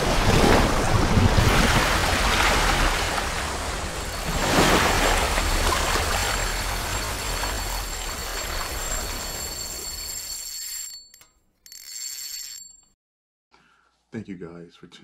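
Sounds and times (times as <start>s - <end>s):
rushing splashing water: 0.0s - 8.5s.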